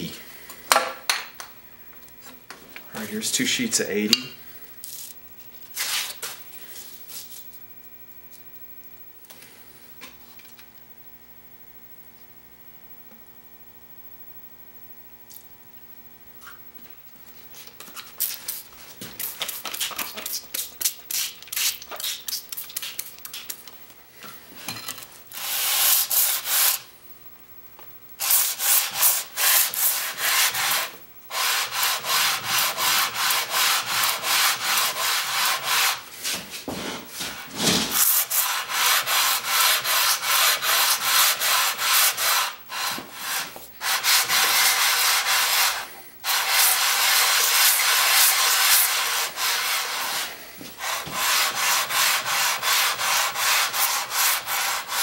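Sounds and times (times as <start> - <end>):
plane scraping on wet sandpaper: 5.8 - 6.4, 25.3 - 26.8, 28.2 - 55.0.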